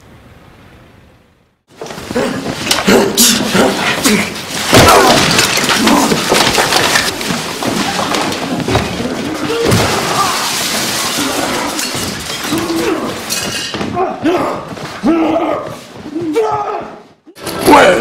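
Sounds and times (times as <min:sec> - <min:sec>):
knocks and crashing: 0:01.7 - 0:15.0
scuffling: 0:01.7 - 0:17.3
men grunting and straining: 0:01.8 - 0:18.0.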